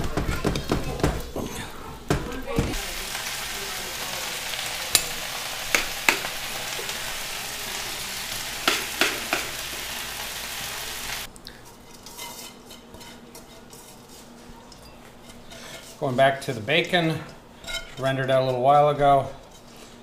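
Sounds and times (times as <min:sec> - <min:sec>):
food sizzling in a pan: 0:02.7 - 0:11.3
metal cookware clinking: 0:04.8 - 0:07.0, 0:08.6 - 0:09.8, 0:11.6 - 0:18.6.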